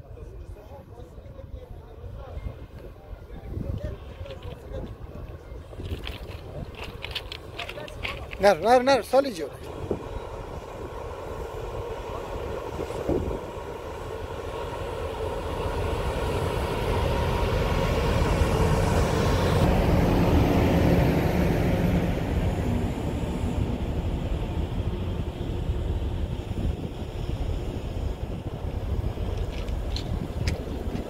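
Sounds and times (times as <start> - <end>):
diesel locomotive passing: 0.0 - 31.0
coaches rumbling on rails: 2.1 - 31.0.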